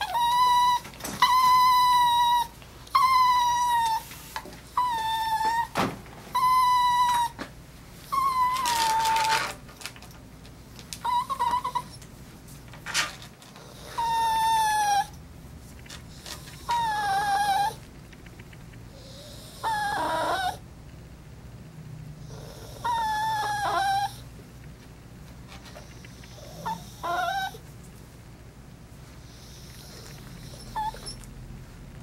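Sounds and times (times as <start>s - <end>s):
dog squeaks: 0.0s - 4.1s, 4.7s - 7.4s, 8.1s - 9.6s, 11.0s - 12.0s, 13.6s - 15.1s, 16.4s - 17.8s, 19.0s - 20.6s, 22.4s - 24.2s, 26.2s - 27.6s, 29.8s - 31.3s
small dog whining: 0.0s - 9.7s, 11.0s - 12.1s, 13.6s - 15.2s, 16.1s - 20.6s, 22.2s - 24.3s, 25.7s - 27.7s, 29.3s - 31.4s.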